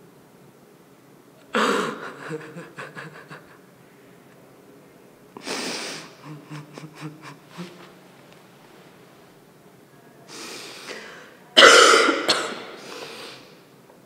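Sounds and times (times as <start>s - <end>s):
sharp bursts of breath: 5.4s - 6.2s, 10.3s - 11.4s, 12.7s - 13.6s.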